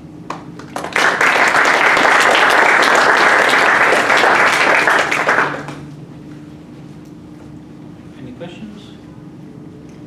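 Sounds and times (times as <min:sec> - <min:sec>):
audience applauding: 0:00.6 - 0:05.8.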